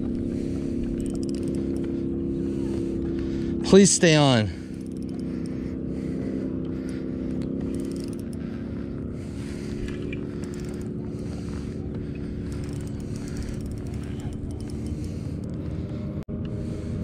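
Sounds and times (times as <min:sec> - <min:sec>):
low motor hum: 0:00.0 - 0:17.0
faint scrapes and ticks: 0:00.8 - 0:01.9, 0:09.4 - 0:15.7.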